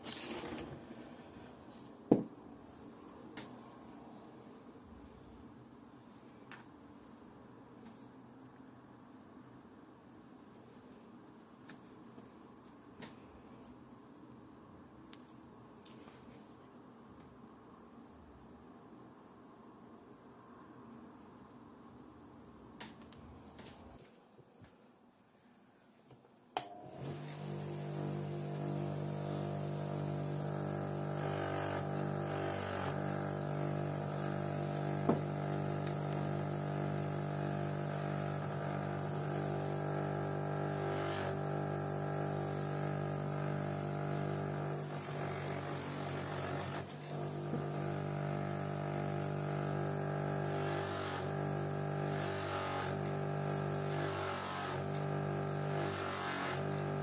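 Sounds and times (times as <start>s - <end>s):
bench grinder motor hum: 26.9s - 57.0s.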